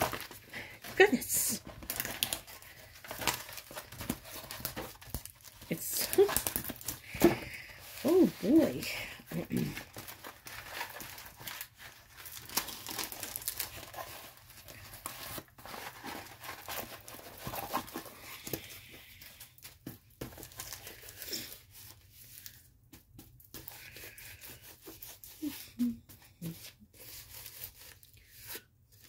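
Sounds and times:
plastic crinkling and rustling: 0:00.0 - 0:22.7.

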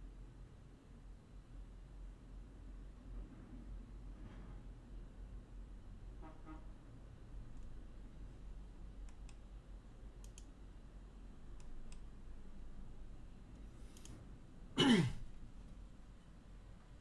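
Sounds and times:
soft clicks: 0:09.0 - 0:09.5, 0:10.1 - 0:10.6, 0:11.4 - 0:12.4, 0:13.5 - 0:14.2.

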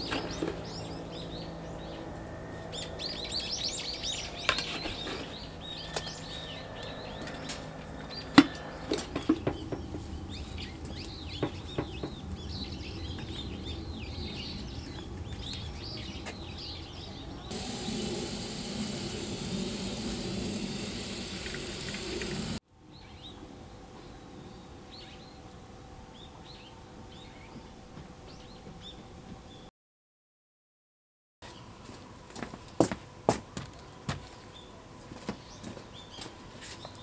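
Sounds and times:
small birds chirping: 0:00.0 - 0:23.4
water spray hissing: 0:17.5 - 0:22.6.

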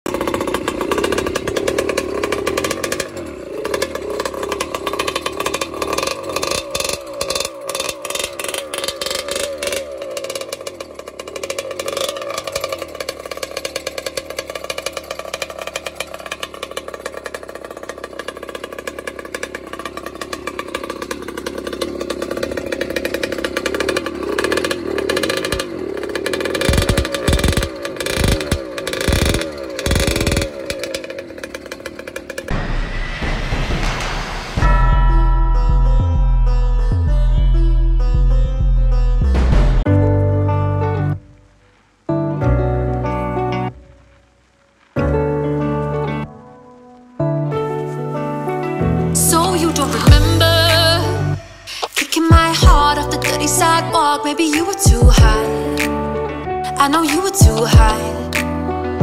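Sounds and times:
two-stroke engine fast idle: 0:00.1 - 0:32.5
heavy low thumps: 0:32.5 - 0:40.4, 0:50.1 - 0:50.6, 0:55.0 - 0:55.4.

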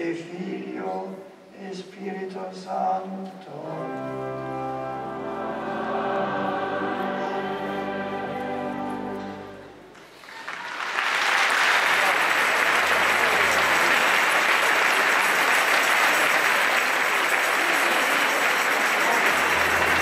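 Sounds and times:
audience applauding: 0:09.9 - 0:20.0.

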